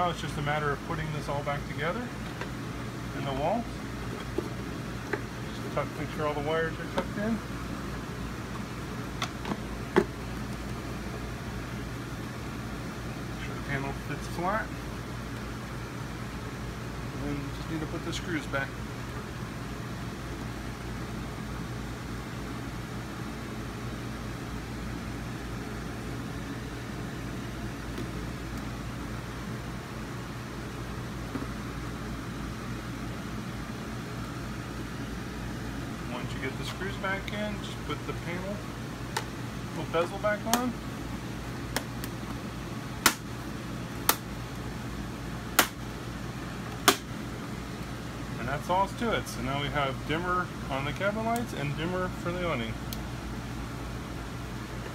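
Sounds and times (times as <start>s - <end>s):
fan humming and hissing: 0.0s - 54.9s.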